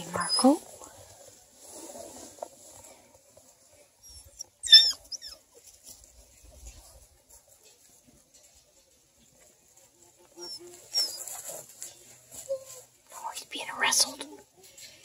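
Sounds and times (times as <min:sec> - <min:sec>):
puppy squealing: 0:04.0 - 0:05.4, 0:10.4 - 0:11.2.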